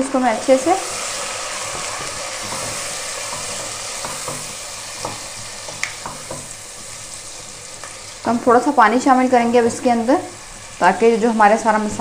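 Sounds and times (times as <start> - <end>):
food sizzling in hot oil: 0.0 - 12.0
spoon knocking against pot: 1.7 - 6.5.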